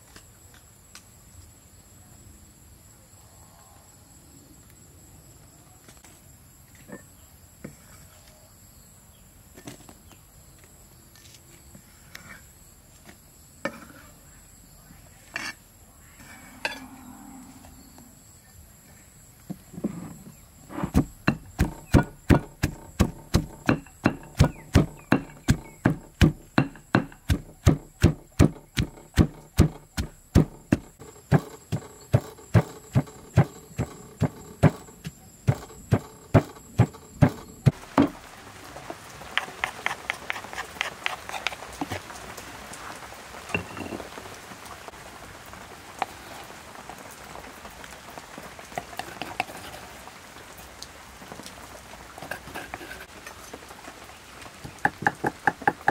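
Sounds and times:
background hiss: 0.0s - 55.9s
pestle pounding in stone mortar: 20.9s - 38.2s, 39.4s - 42.0s, 54.8s - 55.9s.

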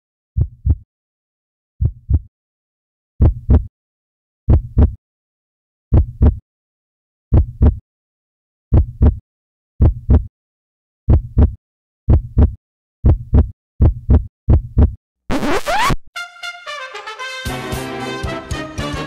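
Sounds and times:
slow heartbeat thumps: 0.4s - 0.8s, 1.8s - 2.3s, 3.2s - 3.7s, 4.5s - 5.0s, 5.9s - 6.4s, 7.3s - 7.8s, 8.7s - 9.2s, 9.8s - 10.3s, 11.1s - 15.0s.

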